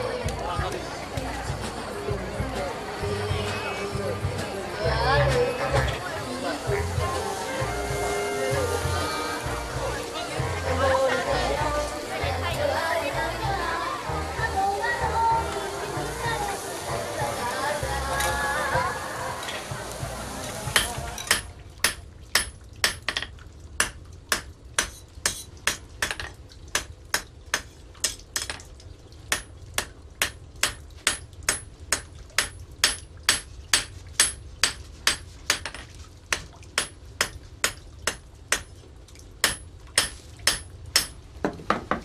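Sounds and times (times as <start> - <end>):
hammer striking metal on anvil: 20.8 - 27.3, 39.4 - 41.2.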